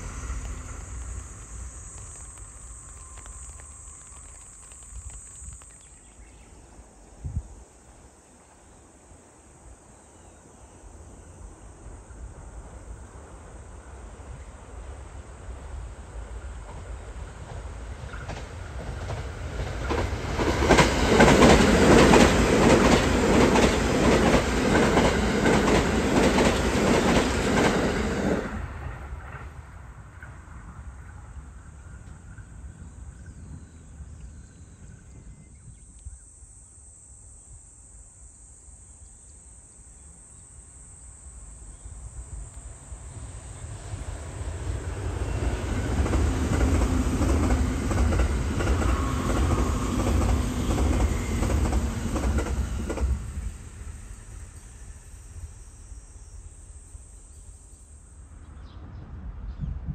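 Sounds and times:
electric train passing: 0:00.0 - 0:35.1, 0:39.5 - 0:59.6.

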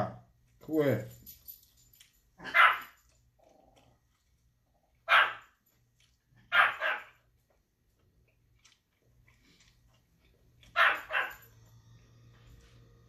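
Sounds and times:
dog barking: 0:02.4 - 0:03.0, 0:05.0 - 0:05.5, 0:06.4 - 0:07.2, 0:10.7 - 0:11.5.

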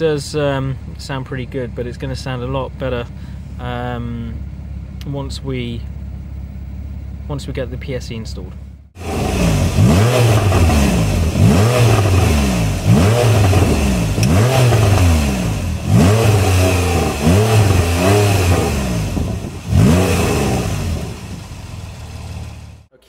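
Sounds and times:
car engine revving: 0:08.9 - 0:22.9.

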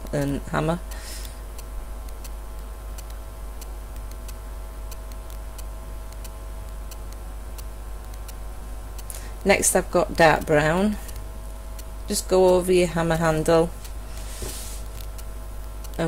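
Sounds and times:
steady low hum: 0:00.0 - 0:16.0
faint sharp ticks: 0:01.6 - 0:09.1.

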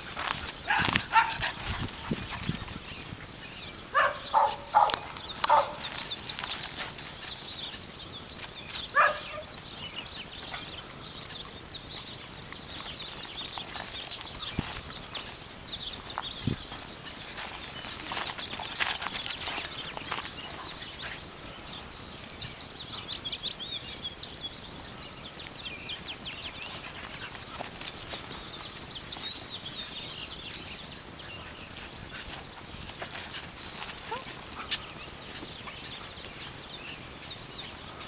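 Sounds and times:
footsteps on gravel path: 0:00.0 - 0:38.0
dog barking: 0:00.7 - 0:01.4, 0:03.9 - 0:05.8, 0:08.9 - 0:09.5.

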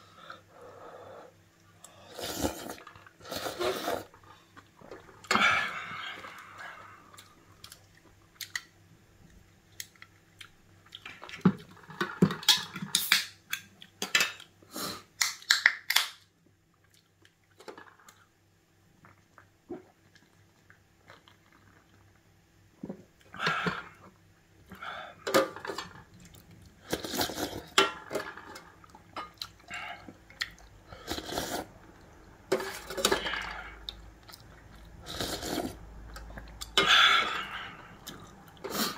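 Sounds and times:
slurping and chewing noodles: 0:01.9 - 0:05.3, 0:26.1 - 0:27.8, 0:28.4 - 0:38.9.

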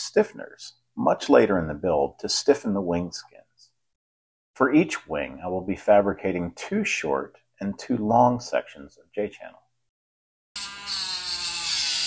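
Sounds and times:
die grinder cutting metal: 0:10.6 - 0:12.0.

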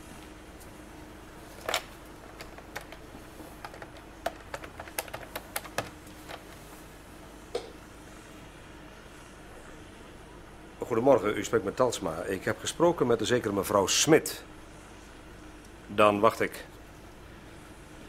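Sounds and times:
telephone buttons clicking: 0:01.6 - 0:06.5.

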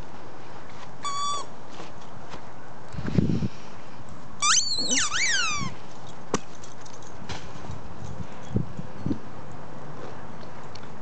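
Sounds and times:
dog whining and yelping: 0:04.5 - 0:05.7.

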